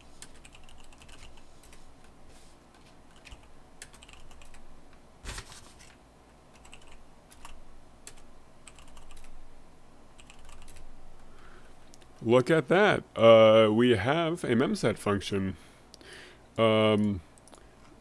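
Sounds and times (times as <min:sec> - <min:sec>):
computer keyboard typing: 0:00.2 - 0:01.8, 0:03.1 - 0:04.6, 0:06.5 - 0:09.4, 0:10.2 - 0:10.8.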